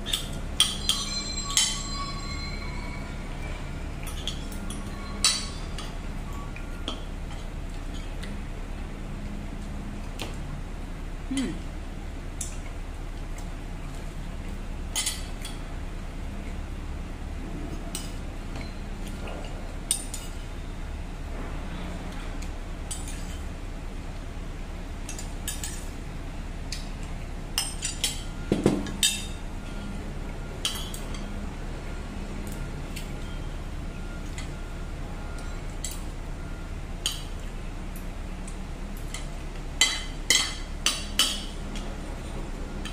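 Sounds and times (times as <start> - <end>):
steady low hum: 0.0 - 42.9
cutlery clinking on ceramic plate: 0.1 - 2.9, 4.0 - 6.0.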